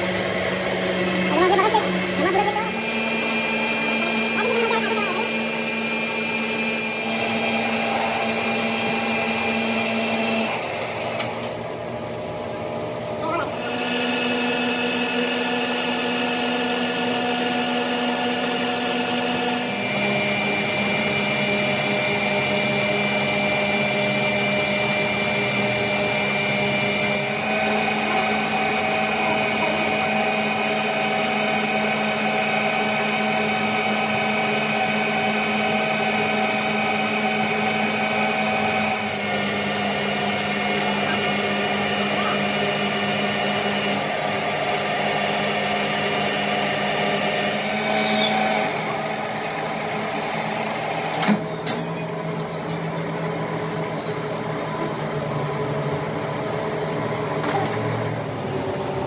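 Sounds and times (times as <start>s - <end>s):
metalworking machinery whine: 0.0s - 59.0s.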